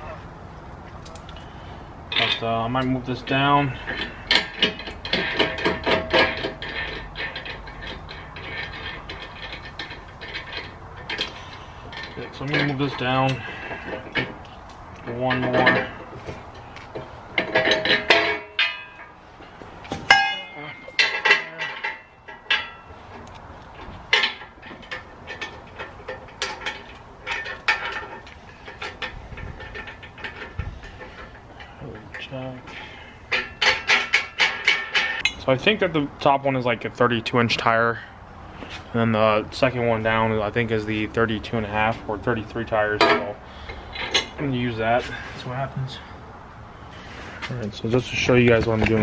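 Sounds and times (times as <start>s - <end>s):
metal hardware clicking and clinking: 0.6s - 35.6s.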